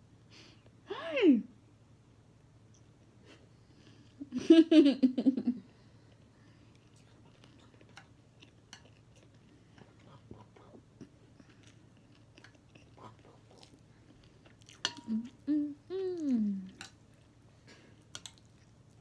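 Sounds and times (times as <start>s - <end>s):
chewing noodles: 6.1s - 19.0s.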